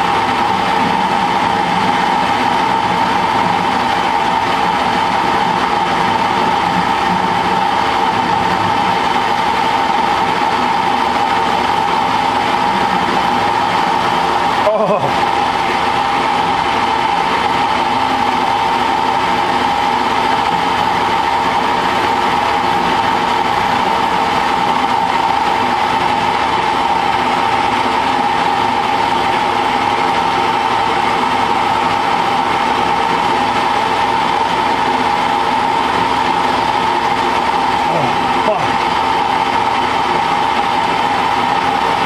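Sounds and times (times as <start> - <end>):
metal lathe motor whining: 0.0 - 42.0.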